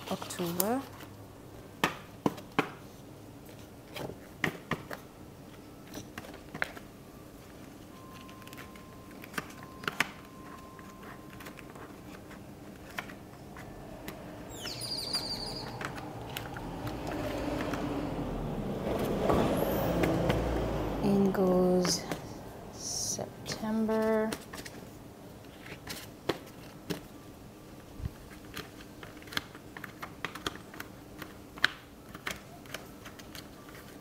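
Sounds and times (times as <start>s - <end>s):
planner pages clicking onto discs: 8.1s - 14.2s, 28.2s - 34.0s
low rumble: 13.4s - 21.3s.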